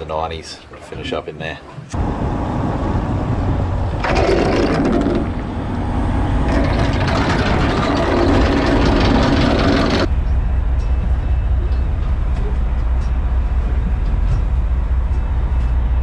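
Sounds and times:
boat engine hum: 1.6s - 16.0s.

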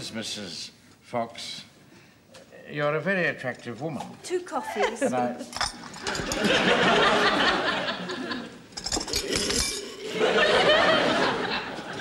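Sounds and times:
studio audience laughing: 6.0s - 8.6s, 10.1s - 12.0s.

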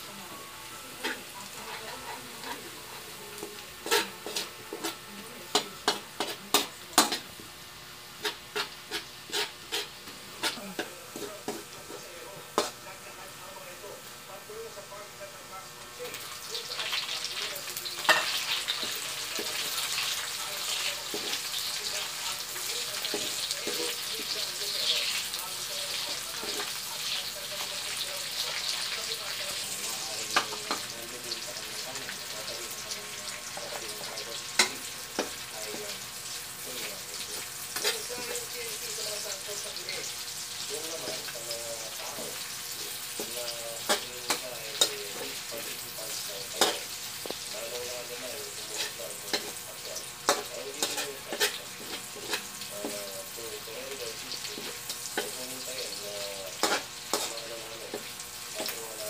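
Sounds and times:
garlic and onion sizzling: 0.0s - 59.0s
metal spatula scraping wok: 3.8s - 7.3s, 8.2s - 11.7s, 48.4s - 53.1s.

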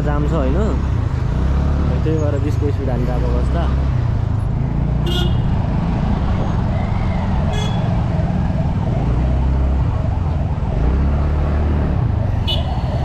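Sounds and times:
motorcycle engine rumble: 0.0s - 13.0s
wind buffeting microphone: 5.4s - 10.8s.

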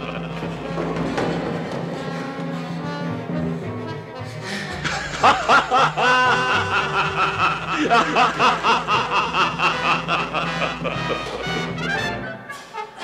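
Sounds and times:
person laughing: 0.0s - 1.0s, 4.6s - 11.8s.

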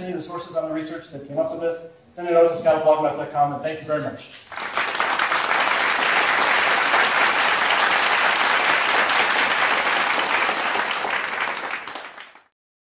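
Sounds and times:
audience applauding: 4.5s - 12.6s.

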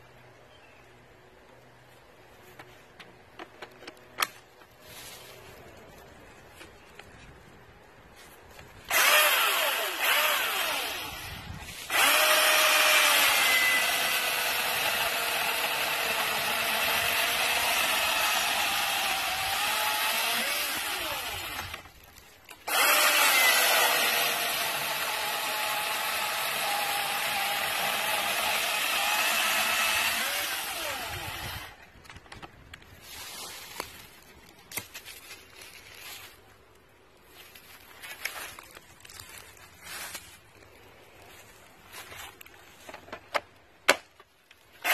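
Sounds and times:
chainsaw cutting through log: 8.9s - 31.8s.

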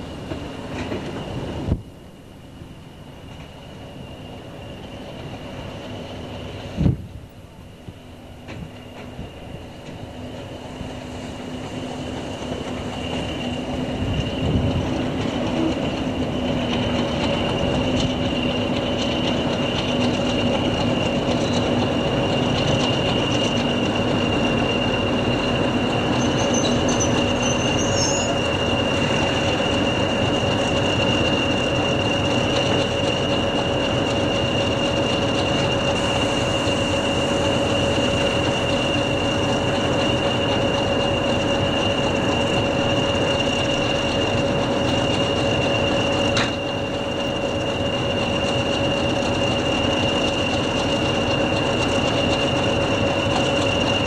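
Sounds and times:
train running slowly: 0.0s - 54.0s
high-pitched wheel squeal: 20.8s - 54.0s.

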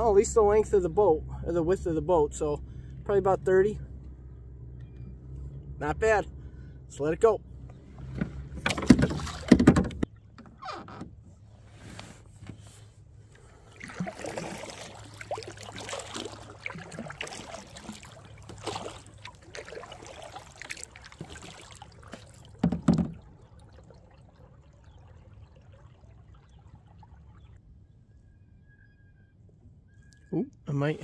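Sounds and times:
faint water and wind noise: 0.0s - 31.0s
paddle strokes splashing water: 7.8s - 9.9s, 11.5s - 27.6s.

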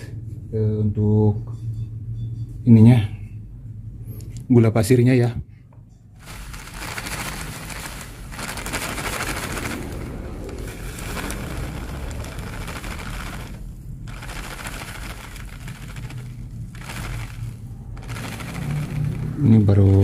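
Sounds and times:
sugar pouring into plastic tub: 6.2s - 9.7s, 10.6s - 19.4s.

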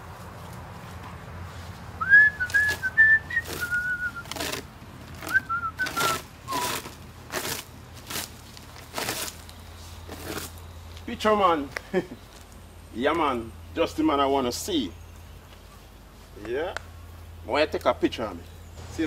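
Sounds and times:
person whistling a tune: 2.0s - 4.2s, 5.3s - 6.7s.

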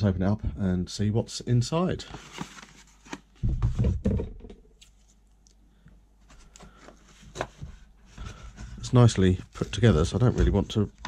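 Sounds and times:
cardboard rustle: 2.0s - 3.8s, 6.2s - 11.0s.

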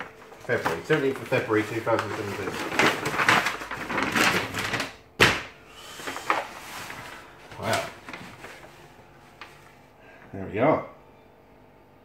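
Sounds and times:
packing paper rustling and crinkling: 0.0s - 9.9s.

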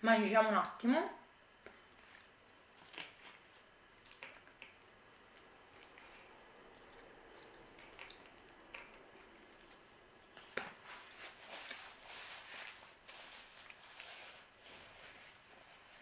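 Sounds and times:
soft chewing: 1.6s - 16.0s
paper napkin crinkling: 10.6s - 16.0s.

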